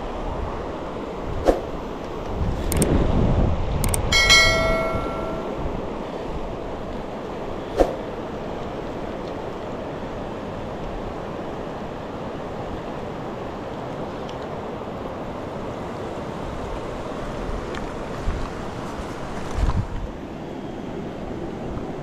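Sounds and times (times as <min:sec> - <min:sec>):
sharp click: 0:02.7 - 0:02.9, 0:03.8 - 0:05.5.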